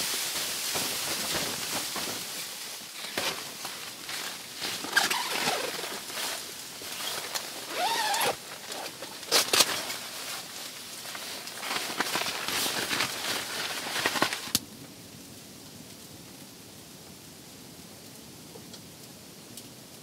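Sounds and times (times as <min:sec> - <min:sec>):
fabric rustling: 0:00.0 - 0:14.5
soft wind hiss: 0:00.0 - 0:20.0.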